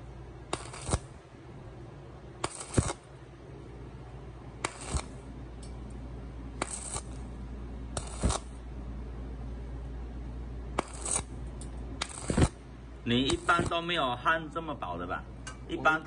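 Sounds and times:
welding arc crackling: 0.0s - 1.3s, 2.4s - 3.2s, 4.6s - 5.4s, 6.5s - 8.6s, 10.8s - 14.1s
low steady hum: 0.0s - 16.0s.

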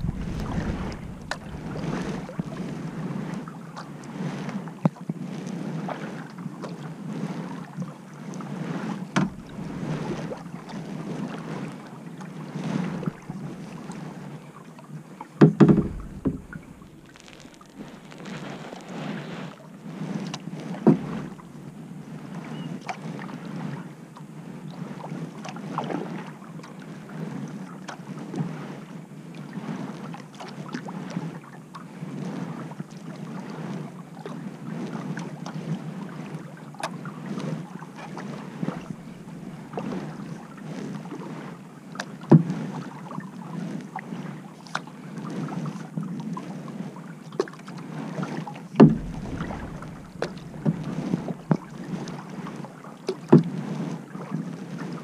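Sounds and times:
loud thump: 0.0s - 2.7s, 9.2s - 10.2s, 15.4s - 18.2s, 20.9s - 21.4s, 48.8s - 52.2s
paddle strokes through water: 0.0s - 55.0s
water washing along hull: 0.0s - 55.0s.

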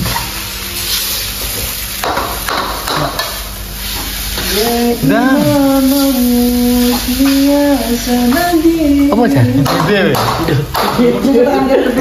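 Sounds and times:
person singing long note: 4.4s - 9.8s.

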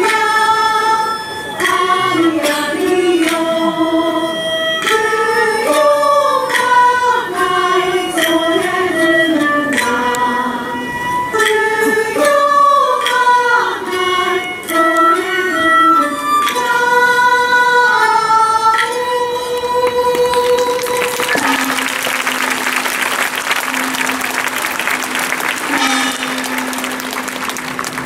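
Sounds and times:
lutes and flutes melody: 0.0s - 28.0s
applause: 19.8s - 28.0s
low held tone: 20.9s - 27.6s.

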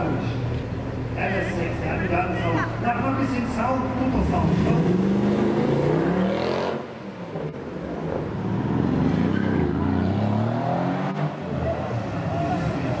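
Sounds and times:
cars driving past: 0.0s - 13.0s
car engine revving: 2.8s - 13.0s.

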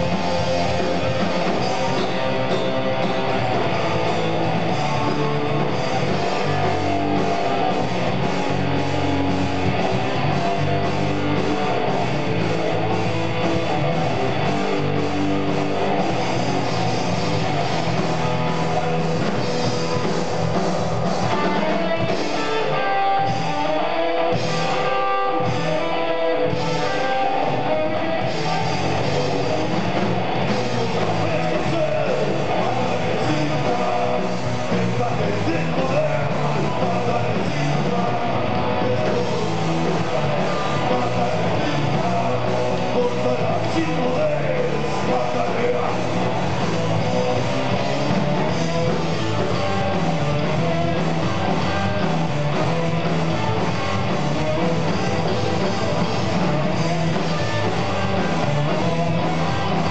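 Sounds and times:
bass guitar: 0.0s - 59.9s
drums: 0.0s - 59.9s
electric guitars: 0.0s - 59.9s
person singing: 30.5s - 53.2s.

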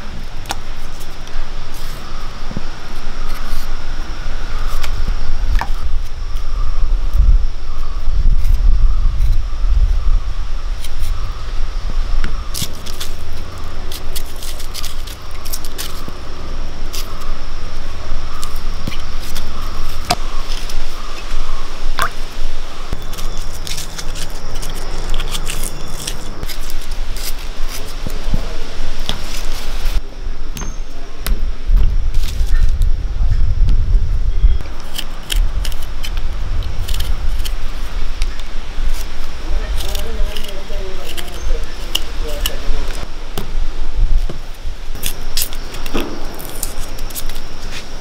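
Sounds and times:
steady low rumble: 0.0s - 48.0s
knife peeling shallots: 12.2s - 22.2s, 22.9s - 29.8s, 34.6s - 43.1s, 44.1s - 48.0s.

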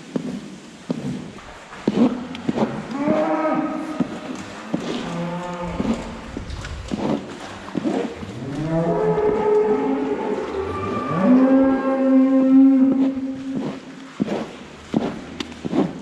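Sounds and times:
rake scraping bedding: 1.0s - 9.0s, 12.9s - 16.0s
cow mooing: 5.0s - 6.3s, 8.4s - 13.0s.

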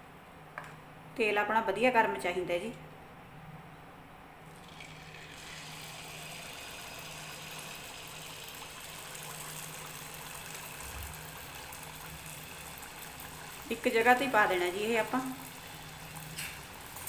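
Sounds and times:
batter sizzling in hot oil: 4.5s - 17.0s.

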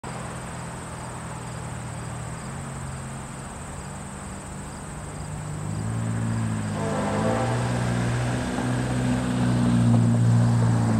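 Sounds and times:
diesel locomotive engine drone: 0.0s - 10.9s
insects trilling: 0.1s - 8.1s.

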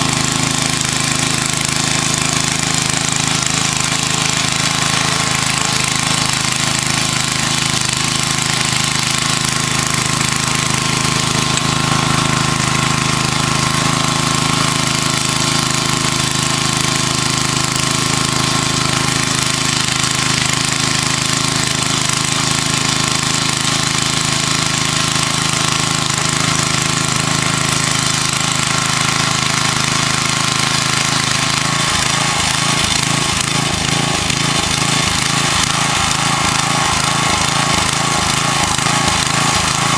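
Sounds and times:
rototiller engine running: 0.0s - 39.9s
tines churning soil: 0.0s - 39.9s.

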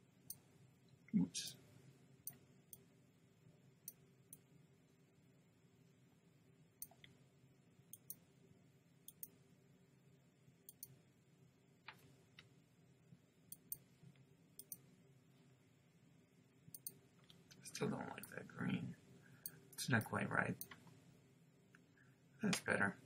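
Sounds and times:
faint low hum: 0.0s - 23.0s
computer mouse clicking: 7.9s - 8.2s, 9.1s - 9.3s, 10.7s - 10.9s, 13.5s - 13.8s, 14.6s - 14.8s, 16.7s - 17.4s.

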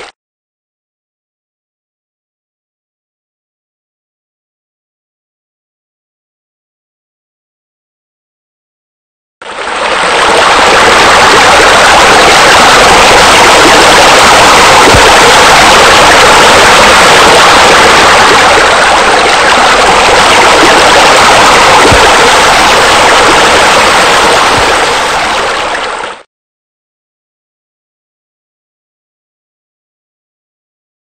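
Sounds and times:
rushing falling water: 9.5s - 26.2s.

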